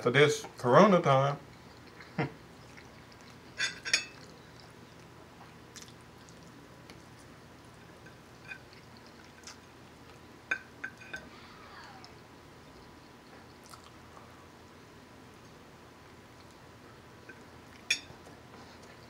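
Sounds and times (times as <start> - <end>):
quiet chewing: 1.4 - 14.8, 15.4 - 19.0
fork scraping on plate: 3.5 - 4.2.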